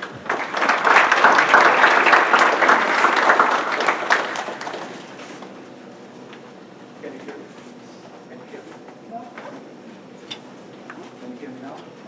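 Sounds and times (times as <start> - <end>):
audience applauding: 0.0 - 5.4.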